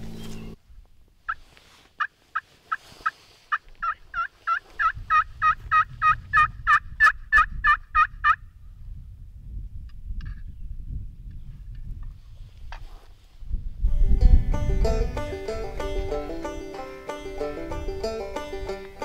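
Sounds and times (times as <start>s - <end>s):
turkey call yelps: 3.8s - 8.4s.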